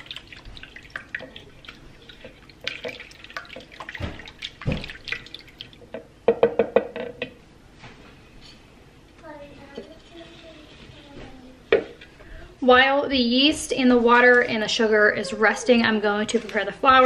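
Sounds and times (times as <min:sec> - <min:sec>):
liquid sloshing in a bowl: 0:00.0 - 0:06.1.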